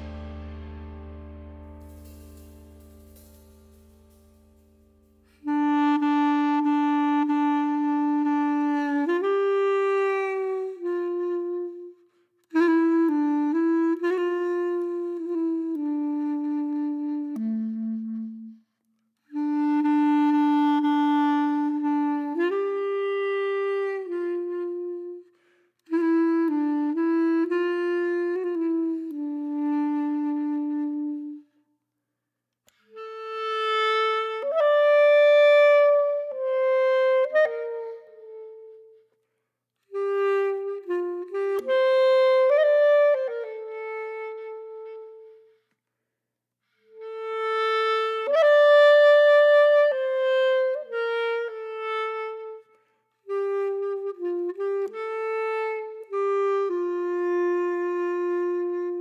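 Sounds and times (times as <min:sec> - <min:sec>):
slow melody with long held notes: 0:00.0 - 0:31.5.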